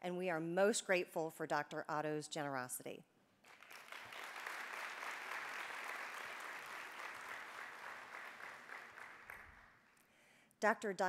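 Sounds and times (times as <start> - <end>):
audience applauding: 3.5 - 9.8.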